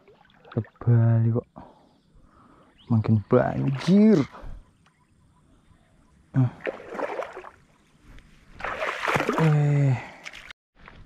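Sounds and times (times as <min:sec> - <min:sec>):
water sloshing and splashing: 0:00.0 - 0:00.9, 0:06.4 - 0:07.9, 0:08.5 - 0:11.0
man's wordless vocal sounds: 0:06.3 - 0:06.8, 0:09.3 - 0:10.2.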